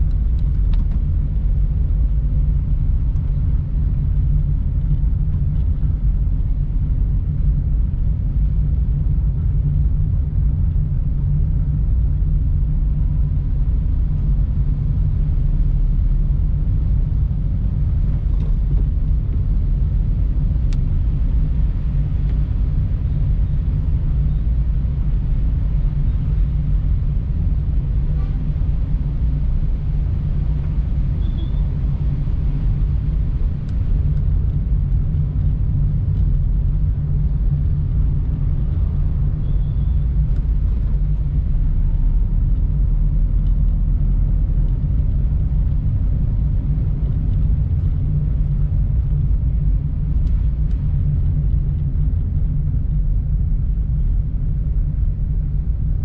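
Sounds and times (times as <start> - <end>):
car engine rumble: 0.0 - 56.0
tyres on road: 0.0 - 56.0.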